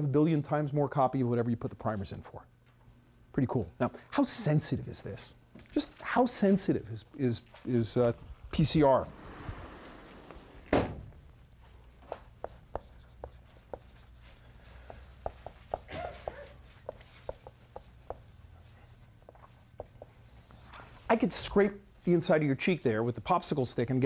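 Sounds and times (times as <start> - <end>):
marker writing on whiteboard: 12.0 - 21.0.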